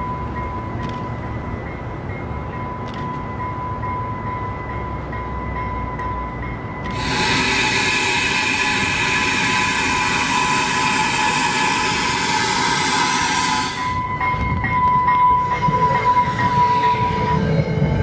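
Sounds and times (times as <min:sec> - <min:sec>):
train coaches rumbling past: 0:00.0 - 0:18.0
wheels clicking on rails: 0:06.8 - 0:18.0
hiss with high tones: 0:06.9 - 0:14.1
high wheel squeal: 0:06.9 - 0:14.3, 0:15.3 - 0:18.0.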